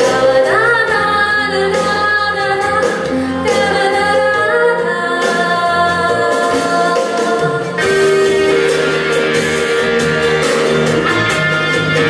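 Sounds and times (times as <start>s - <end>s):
woman singing a slow ballad: 0.0s - 8.4s
instrumental backing music: 0.0s - 12.0s.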